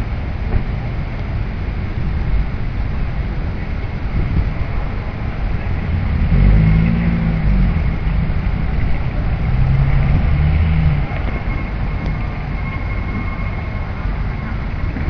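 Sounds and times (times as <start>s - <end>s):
traffic rumble: 0.0s - 15.0s
vehicle engine passing: 4.1s - 15.0s.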